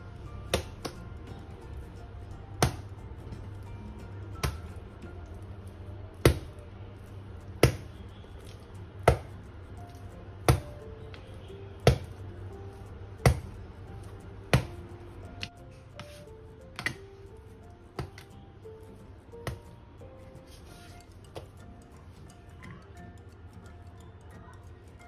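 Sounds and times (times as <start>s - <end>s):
soft background music: 0.0s - 25.0s
dough slapped on countertop: 2.6s - 2.8s, 4.4s - 4.6s, 7.6s - 7.9s, 9.0s - 9.3s, 11.9s - 12.1s, 13.2s - 13.5s, 14.5s - 14.7s.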